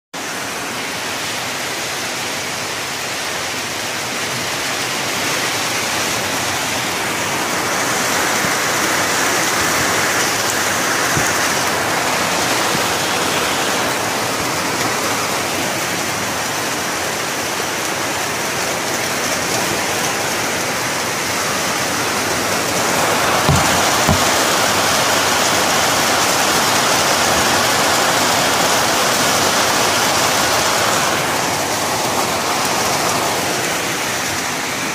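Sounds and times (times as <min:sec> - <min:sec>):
heavy rain on tree leaves: 0:00.2 - 0:34.9.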